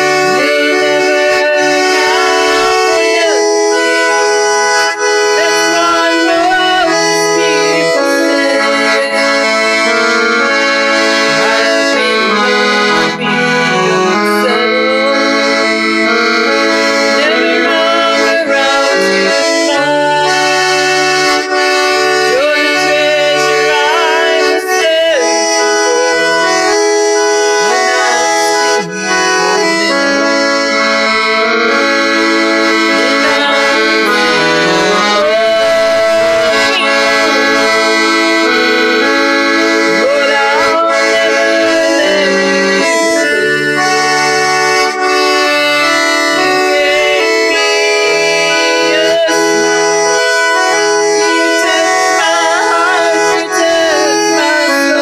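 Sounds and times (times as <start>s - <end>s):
woman singing: 0.0s - 4.4s, 5.3s - 10.3s, 11.2s - 15.6s, 17.2s - 21.4s, 22.2s - 26.8s, 27.5s - 29.8s, 32.9s - 38.0s, 39.9s - 43.0s, 46.4s - 55.0s
accordion playing gospel song: 0.0s - 55.0s.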